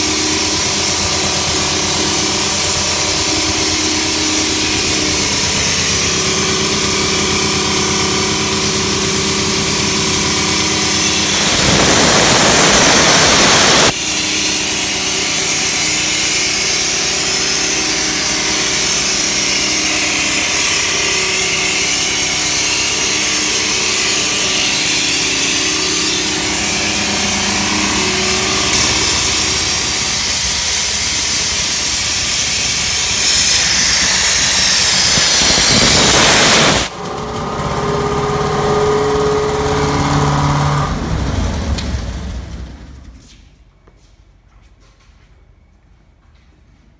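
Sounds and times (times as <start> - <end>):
air compressor engine running: 0.0 - 43.4
rushing air noise: 9.9 - 14.1, 24.1 - 36.9
steady air hiss: 11.0 - 13.9.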